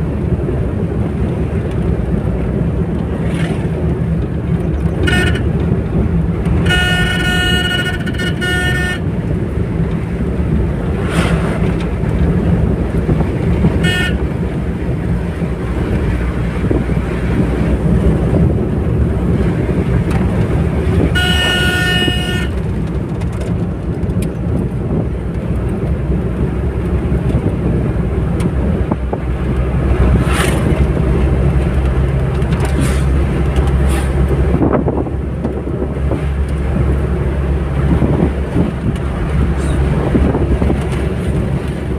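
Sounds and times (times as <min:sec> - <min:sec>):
vehicle engine and road noise: 0:00.0 - 0:41.9
car horn blasts: 0:05.0 - 0:05.6, 0:06.5 - 0:09.1, 0:13.7 - 0:14.4, 0:20.9 - 0:22.7.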